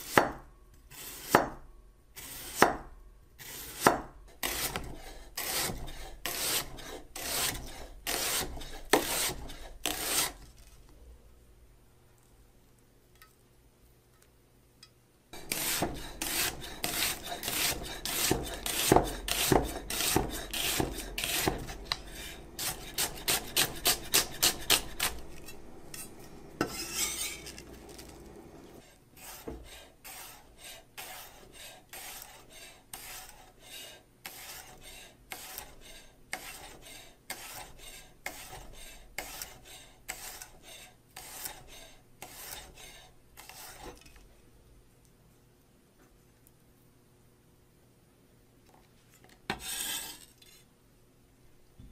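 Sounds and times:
knife slicing onion: 0.0 - 10.7, 15.4 - 44.0.

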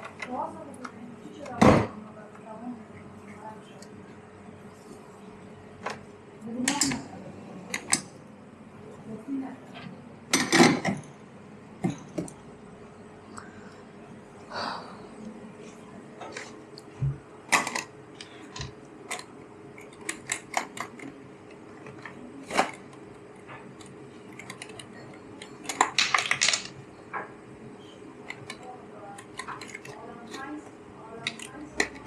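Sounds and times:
faint steady hum: 0.0 - 32.0
cups and saucers clacking: 11.8 - 12.4.

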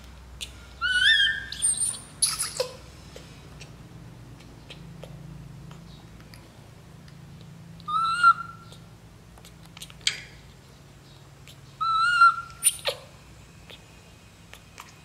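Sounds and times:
baby monkey coo calls: 0.4 - 2.8, 7.8 - 8.9, 11.5 - 13.8.

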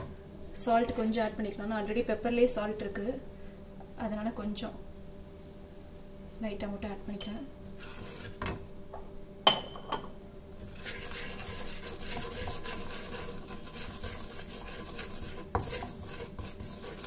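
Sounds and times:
wooden spatula scraping a pan: 7.8 - 8.5, 10.6 - 17.0.

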